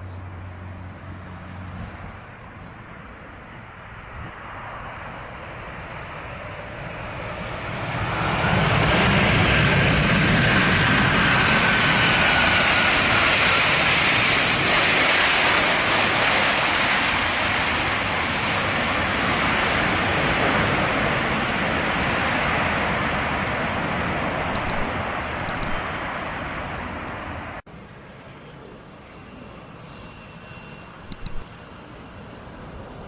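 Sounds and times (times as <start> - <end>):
jet engine roar: 0.4 - 25.8.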